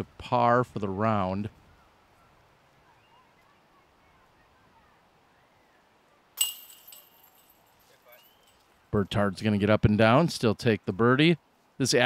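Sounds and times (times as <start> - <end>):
faint birdsong: 1.6 - 6.4, 8.0 - 8.8
disc hitting metal chains: 6.4 - 8.5.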